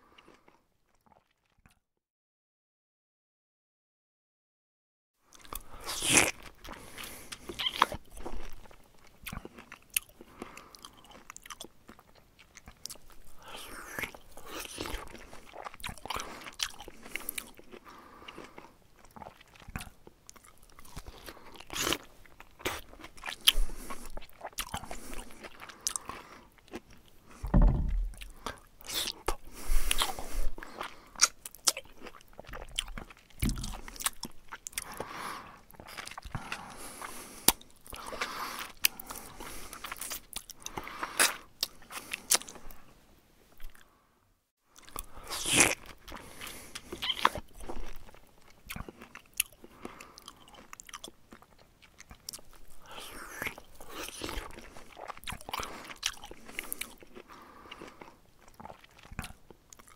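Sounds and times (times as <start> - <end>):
dull low bumps: 27.5 - 28.2.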